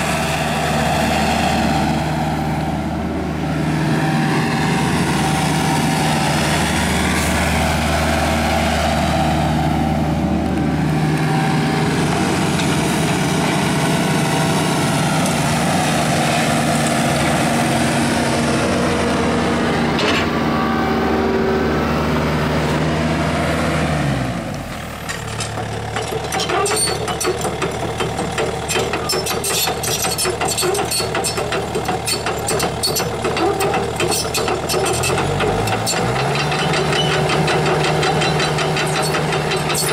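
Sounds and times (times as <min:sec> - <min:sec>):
diesel engine running: 0:00.0 - 0:39.9.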